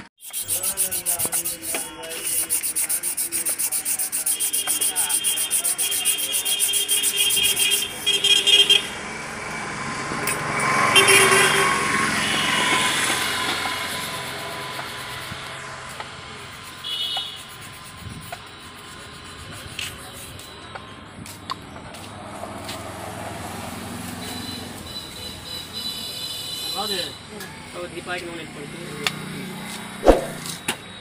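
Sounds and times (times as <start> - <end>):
rapid scrubbing by hand: 0.2 - 7.9, 30.0 - 30.4
steady rushing noise: 30.0 - 30.5.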